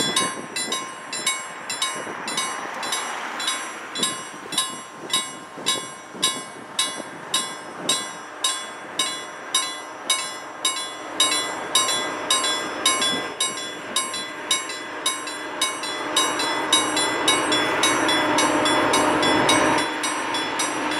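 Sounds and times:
level crossing bell ringing: 0.0 - 20.9.

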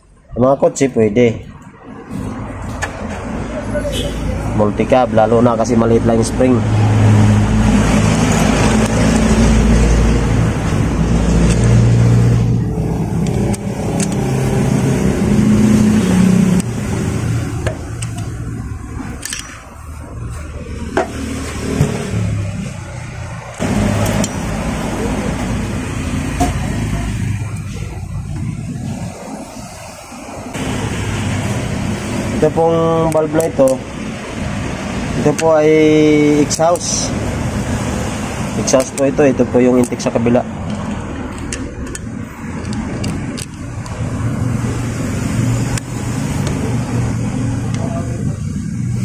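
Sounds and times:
vehicle engine running: 7.4 - 29.6
sharp metallic clicks: 10.5 - 14.9, 16.0 - 19.8, 22.4 - 24.8, 32.4 - 44.8.

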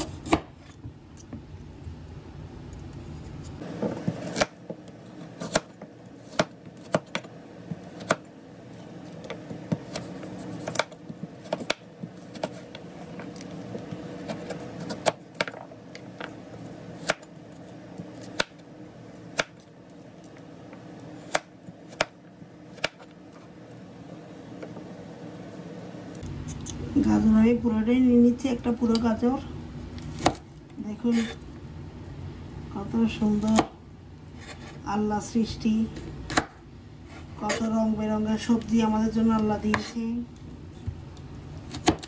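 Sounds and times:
knife cutting on a board: 8.8 - 15.6.

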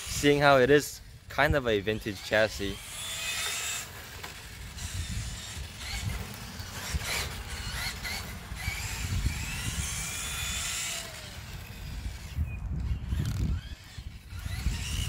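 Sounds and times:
electric motor whining: 0.0 - 15.0
wind rumble on microphone: 4.5 - 15.0.

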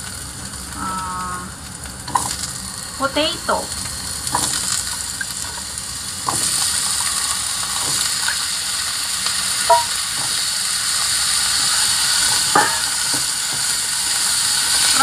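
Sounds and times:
oil sizzling in a frying pan: 0.0 - 15.0
metallic clink: 9.7 - 10.0.

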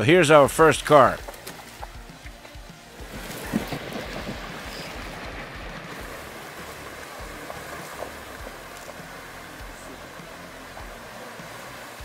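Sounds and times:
water rushing and splashing: 0.0 - 12.0.

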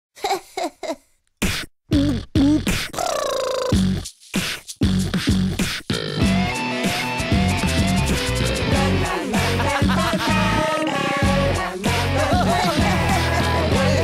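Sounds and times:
person beatboxing and singing: 1.4 - 6.4, 7.6 - 14.0
band with electric guitar: 6.2 - 10.6.

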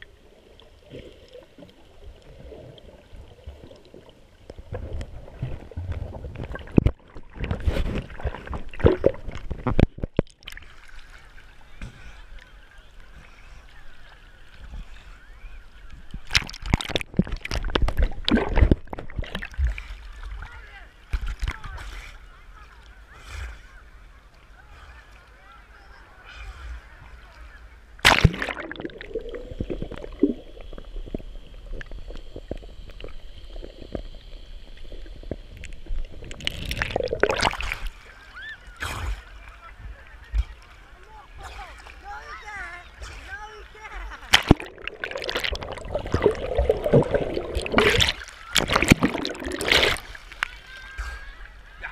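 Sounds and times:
muffled underwater rumble: 0.0 - 10.3, 11.1 - 51.9
water sloshing against camera: 0.0 - 51.9
waves washing over camera: 28.0 - 34.0, 41.5 - 51.9.

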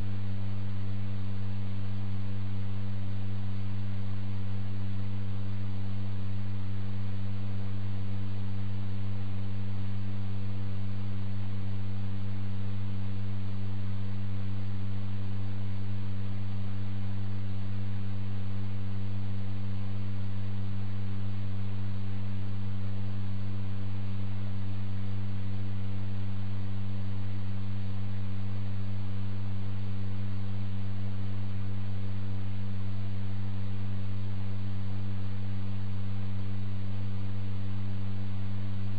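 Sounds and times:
low electrical hum: 0.0 - 38.9.

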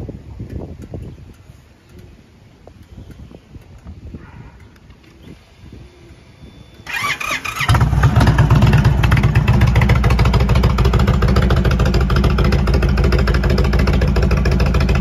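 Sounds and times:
motorcycle engine idling: 6.8 - 15.0.

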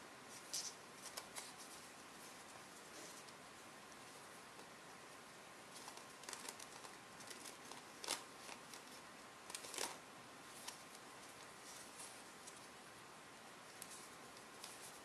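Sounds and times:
paper rustling and clicking: 0.4 - 1.8, 5.7 - 12.6, 13.7 - 15.0.

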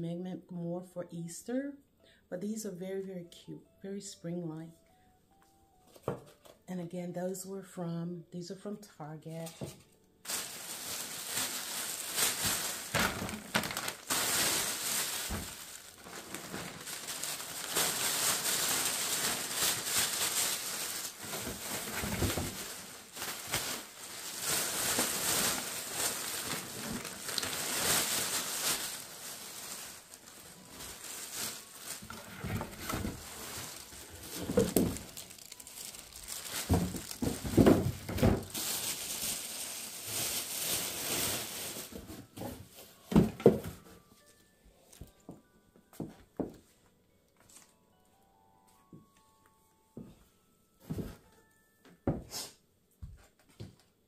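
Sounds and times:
plastic packaging crinkling: 9.7 - 43.7.

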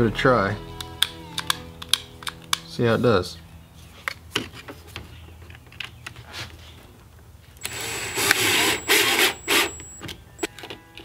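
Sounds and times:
cordless screwdriver driving screw: 7.6 - 10.1.

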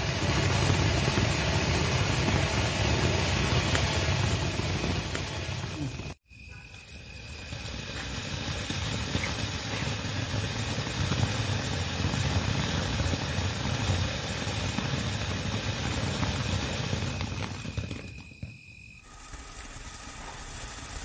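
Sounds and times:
firework crackling: 0.0 - 21.0
firework fountain hissing: 0.0 - 21.0.

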